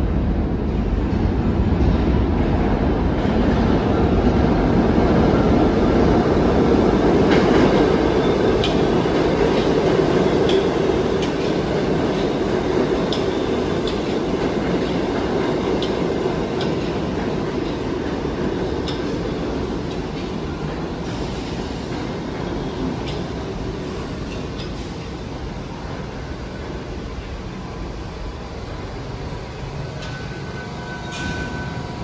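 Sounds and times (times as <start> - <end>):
subway train rumble: 0.0 - 32.0
wheels clicking on rails: 7.1 - 25.2.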